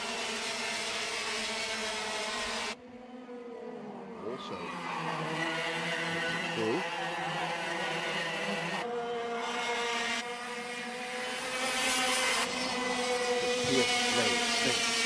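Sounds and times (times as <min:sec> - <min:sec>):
kart engines droning: 0:00.0 - 0:15.0.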